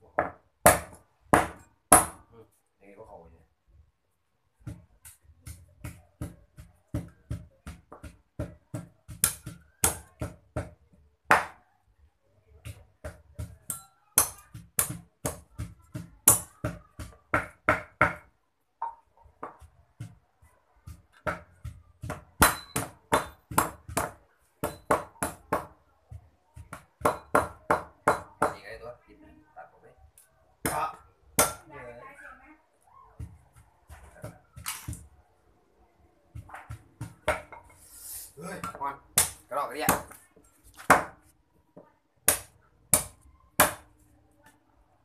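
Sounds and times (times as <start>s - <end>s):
cleaver chopping on wooden block: 0.2s - 2.2s, 4.6s - 11.6s, 12.6s - 18.3s, 20.9s - 25.7s, 26.6s - 28.6s, 36.3s - 37.6s, 38.6s - 40.2s, 40.8s - 41.2s, 42.3s - 43.9s
pestle pounding in clay mortar: 0.2s - 2.2s, 4.6s - 11.6s, 12.6s - 20.2s, 20.8s - 28.6s, 30.6s - 31.6s, 33.2s - 35.1s, 36.3s - 37.8s, 38.4s - 41.2s, 42.3s - 43.9s.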